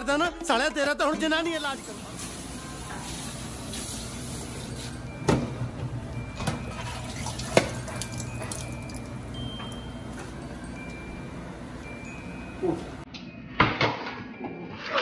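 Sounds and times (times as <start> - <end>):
faucet running into steel sink: 6.7 - 9.2.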